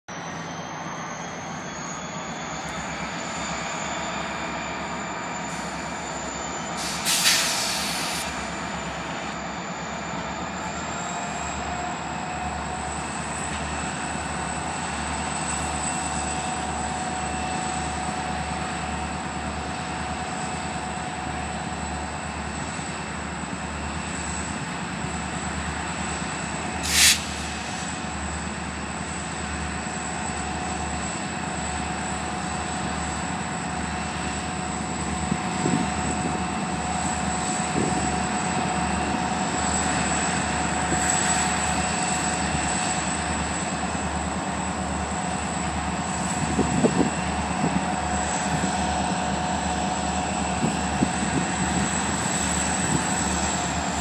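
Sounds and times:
diesel engine drone: 0.1s - 54.0s
short loud hisses: 6.8s - 8.4s, 26.8s - 28.0s.

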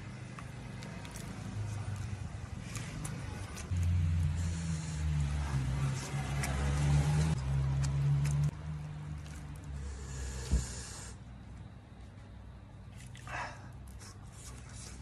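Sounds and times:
passing vehicle rumble: 0.0s - 11.4s.

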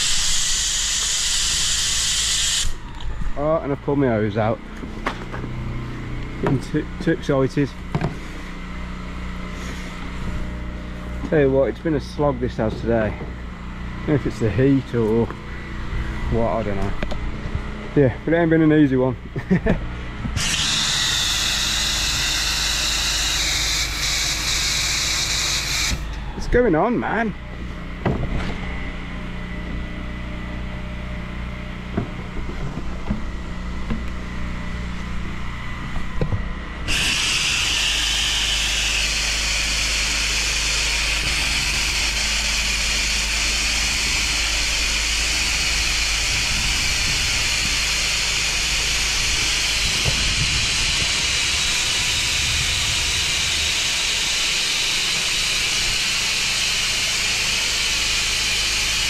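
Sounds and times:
spray nozzle hissing: 0.0s - 2.8s, 20.4s - 26.1s, 36.9s - 58.7s
pressure washer humming: 0.0s - 59.0s.

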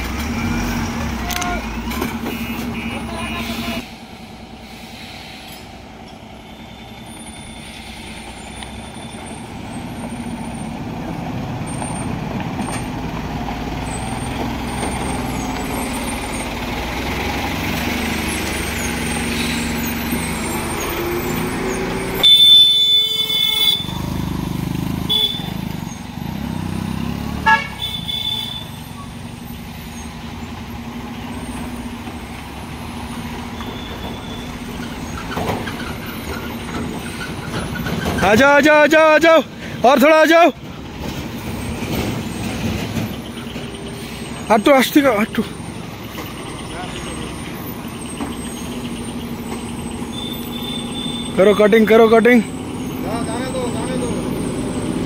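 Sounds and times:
truck diesel engine pulling: 0.0s - 55.0s
vehicle horn: 2.2s - 3.9s, 22.2s - 24.0s, 25.0s - 25.7s, 27.4s - 28.9s.

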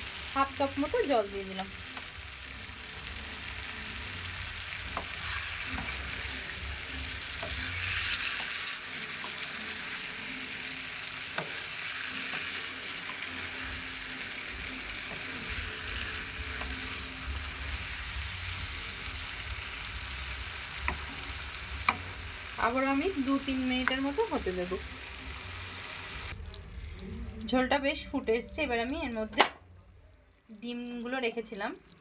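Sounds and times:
vegetables sizzling in a pan: 0.0s - 26.8s
spatula scraping a pan: 4.8s - 17.1s.

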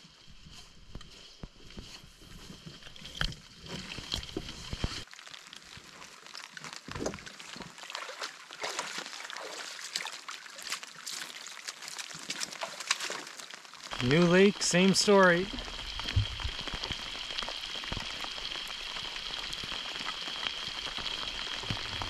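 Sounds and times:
water sloshing and trickling: 2.6s - 14.2s
small splashes and drips: 3.8s - 14.8s
low rumble: 15.5s - 17.5s.

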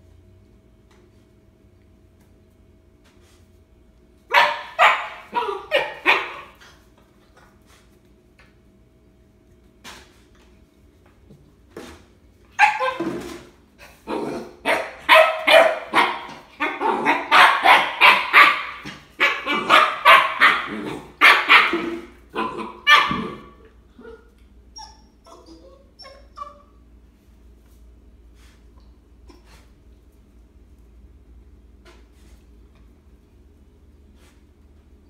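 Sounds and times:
puppy barking: 4.3s - 6.6s, 12.6s - 13.2s, 14.1s - 24.2s.

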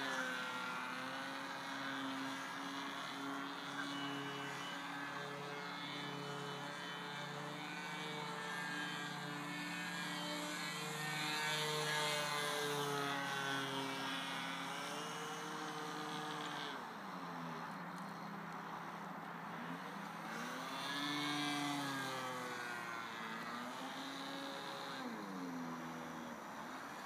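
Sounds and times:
model aeroplane engine droning: 0.0s - 27.0s.

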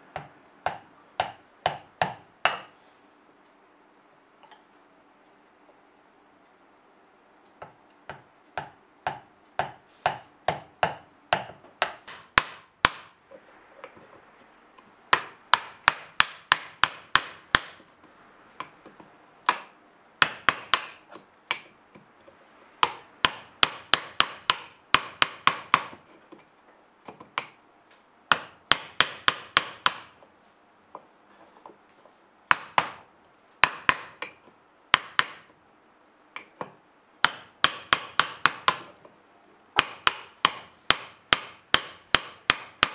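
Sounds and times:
hammer striking chisel into wood: 0.1s - 2.7s, 7.6s - 13.2s, 15.1s - 17.8s, 18.6s - 21.7s, 22.8s - 26.0s, 28.3s - 30.2s, 32.5s - 35.5s, 36.4s - 39.0s, 39.8s - 42.9s.

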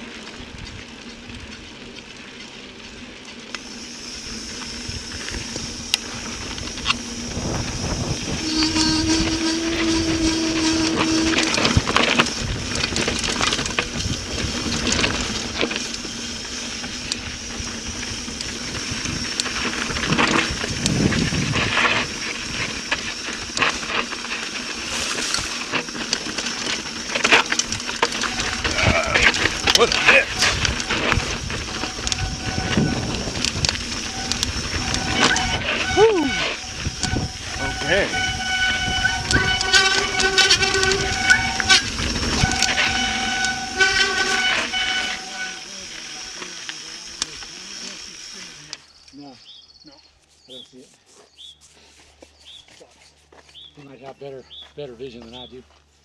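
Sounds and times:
bike rattling and knocking: 0.0s - 45.4s
tyres crunching on dirt: 0.0s - 56.0s
wind rushing over microphone: 4.7s - 16.2s, 17.0s - 23.6s, 27.7s - 43.7s.

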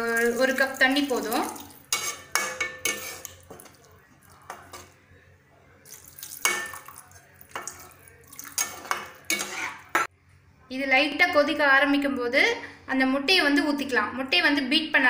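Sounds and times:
metal spatula scraping pan: 0.0s - 3.8s, 8.5s - 10.1s
water pouring into pan: 0.0s - 4.5s, 5.9s - 10.0s.

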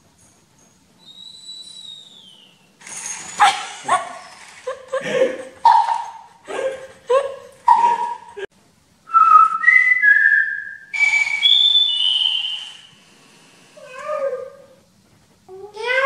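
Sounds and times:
bark-like yelps: 3.4s - 4.2s, 5.6s - 6.3s, 7.7s - 8.3s
speaker hiss: 8.6s - 13.9s
person whistling three notes: 9.1s - 12.9s.

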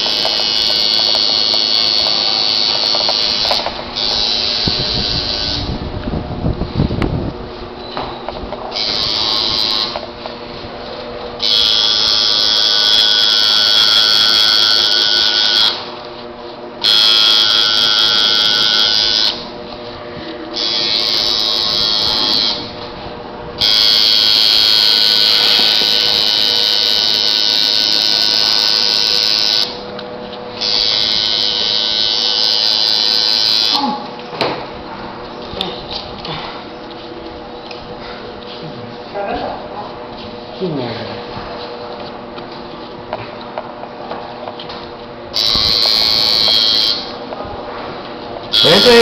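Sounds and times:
tattoo machine buzzing: 0.0s - 5.8s, 8.7s - 10.2s, 11.4s - 16.0s, 16.8s - 19.5s, 20.6s - 22.9s, 23.6s - 34.0s, 45.3s - 47.2s, 48.5s - 49.0s.

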